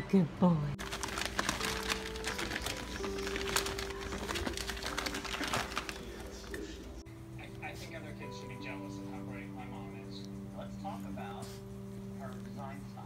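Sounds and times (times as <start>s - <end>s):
plastic bags crinkling: 0.8s - 6.8s
faint steady tones: 6.3s - 13.0s.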